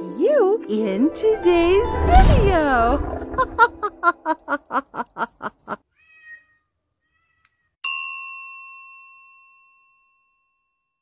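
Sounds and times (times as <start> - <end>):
faint cat meow: 5.9 - 7.7.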